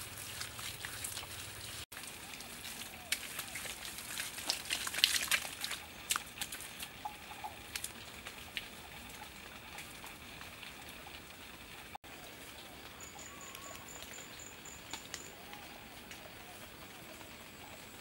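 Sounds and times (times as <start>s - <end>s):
faint outdoor hiss: 0.0s - 18.0s.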